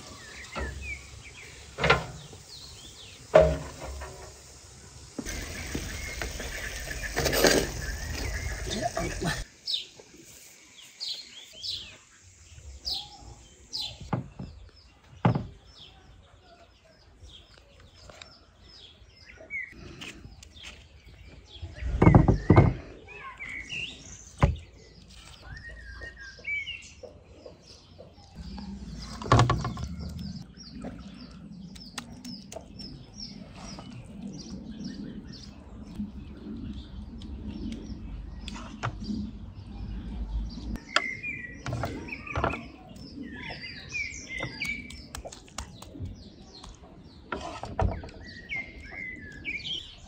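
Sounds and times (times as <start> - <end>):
small birds chirping: 0.0 - 50.0.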